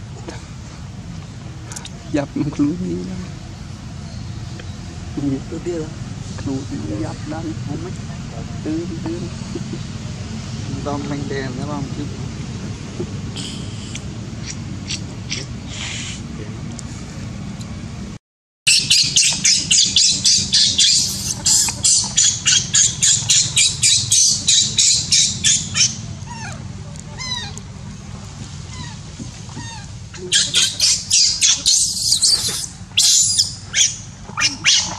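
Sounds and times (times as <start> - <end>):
baby monkey squealing: 13.4 - 16.2, 18.7 - 27.6, 28.7 - 34.9
short sliding calls: 20.8 - 22.3, 30.4 - 33.8.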